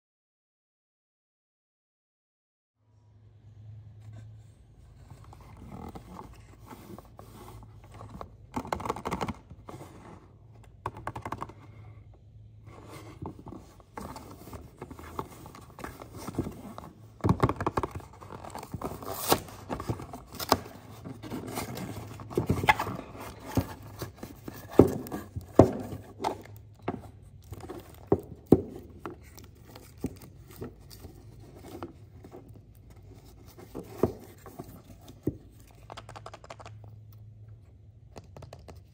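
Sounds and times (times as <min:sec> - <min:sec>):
low steady hum: 0:02.8 - 0:08.6
scraping and tearing cardboard: 0:12.7 - 0:35.3.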